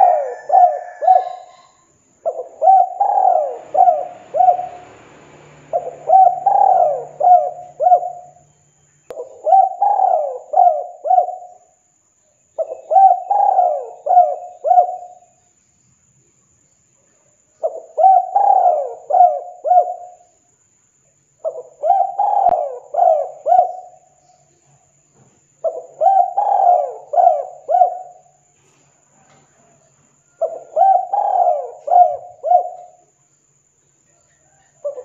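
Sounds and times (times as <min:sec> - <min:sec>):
dove cooing: 0:00.0 - 0:08.4, 0:09.1 - 0:11.6, 0:12.6 - 0:15.3, 0:17.6 - 0:20.2, 0:21.4 - 0:24.2, 0:25.6 - 0:28.4, 0:30.3 - 0:33.0, 0:34.4 - 0:35.0.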